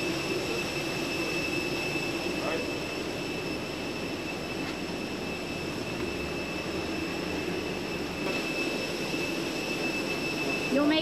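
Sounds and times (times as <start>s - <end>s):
high-pitched whine: 0.0s - 11.0s
machinery drone: 0.0s - 11.0s.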